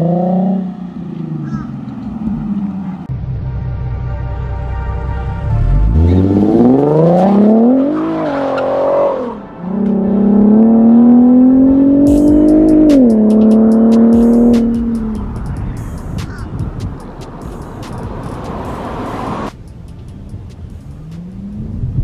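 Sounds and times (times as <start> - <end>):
car engine accelerating hard: 5.4 - 19.6, 20.5 - 22.0.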